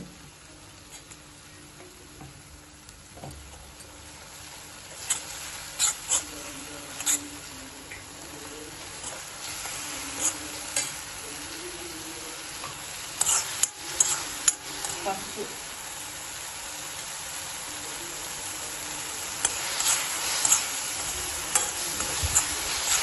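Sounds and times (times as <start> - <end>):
food sizzling in oil: 0.0 - 23.0
steel spoon scraping a pan: 4.9 - 7.6, 9.0 - 11.0, 12.6 - 15.2, 19.3 - 23.0.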